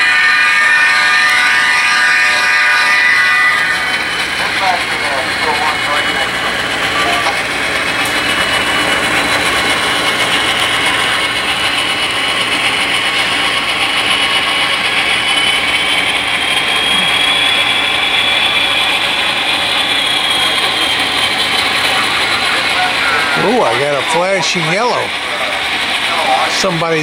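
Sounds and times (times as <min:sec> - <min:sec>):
model locomotives running: 0:00.0 - 0:27.0
high-pitched motor whine: 0:09.6 - 0:26.9.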